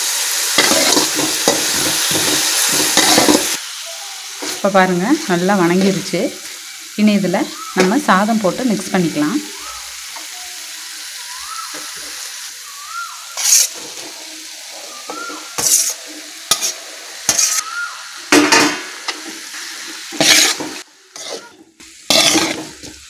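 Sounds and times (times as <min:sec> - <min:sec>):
masala sizzling in a pan: 0:00.0 - 0:23.0
steel spatula scraping a pan: 0:00.6 - 0:03.6, 0:13.4 - 0:17.7, 0:19.1 - 0:23.0.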